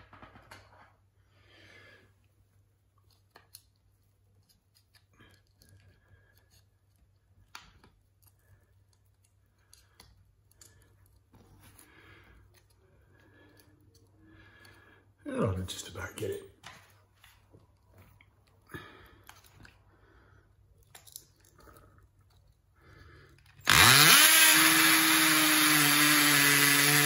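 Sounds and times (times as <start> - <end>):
small handling clicks: 2.9 - 11.8.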